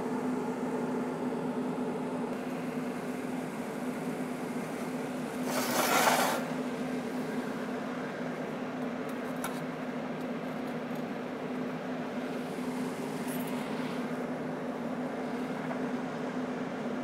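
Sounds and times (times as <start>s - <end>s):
welding arc hiss: 5.4s - 6.5s.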